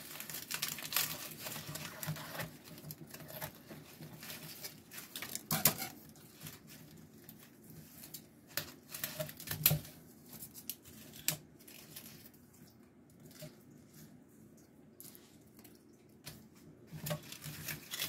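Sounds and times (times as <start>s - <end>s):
plant leaves rustling: 0.0s - 9.5s, 16.4s - 18.0s
leaves clicking and snapping: 0.0s - 13.6s, 15.0s - 18.0s.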